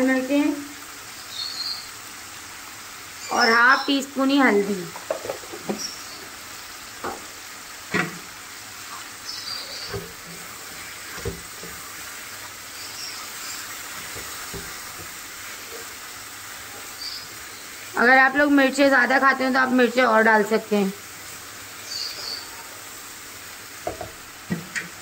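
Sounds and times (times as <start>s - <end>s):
food sizzling in a frying pan: 0.0s - 25.0s
spatula knocking a pan: 4.9s - 5.9s, 7.0s - 7.3s, 7.9s - 8.3s, 9.9s - 11.9s, 14.0s - 15.2s, 23.8s - 25.0s.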